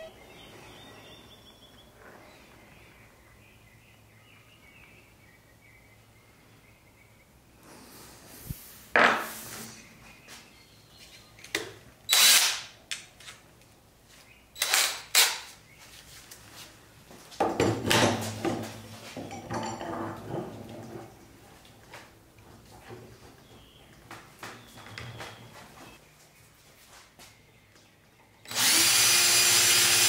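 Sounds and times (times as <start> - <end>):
cordless drill spinning: 12.1 - 12.7, 28.5 - 30.0.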